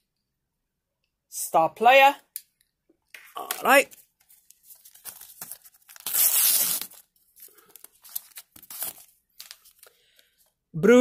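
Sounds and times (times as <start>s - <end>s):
wrapper crinkling and rustling: 3.6s - 9.9s
packet tearing open: 4.8s - 9.9s.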